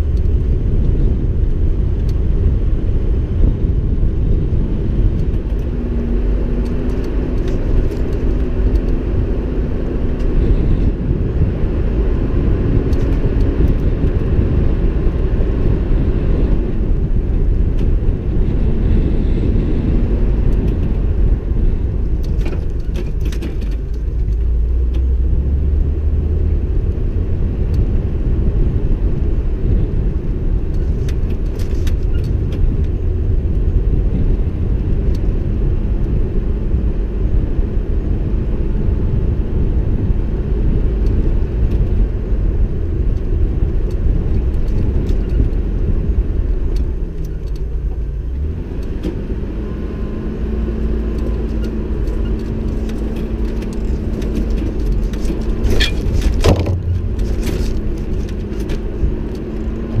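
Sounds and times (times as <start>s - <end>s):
vehicle engine and tyre rumble: 0.0s - 60.0s
rattles and knocks from bumps: 22.2s - 24.5s, 51.2s - 60.0s.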